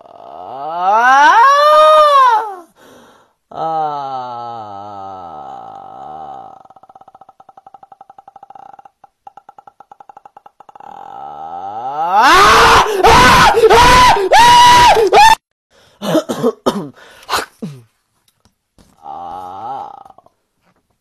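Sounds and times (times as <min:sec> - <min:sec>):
person screaming: 0:00.0 - 0:02.7, 0:10.1 - 0:15.4, 0:19.0 - 0:20.2.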